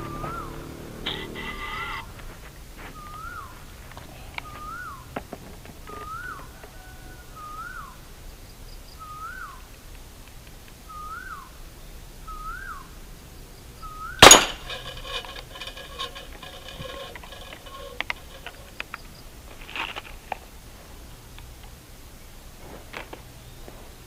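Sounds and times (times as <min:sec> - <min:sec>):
bird whistled call: 0:00.0 - 0:00.6, 0:02.9 - 0:03.6, 0:04.4 - 0:05.1, 0:06.0 - 0:08.0, 0:08.9 - 0:09.6, 0:10.9 - 0:11.6, 0:12.3 - 0:12.9, 0:13.8 - 0:14.2
toy gun shot: 0:14.2 - 0:14.7
metallic ringing: 0:14.2 - 0:18.8.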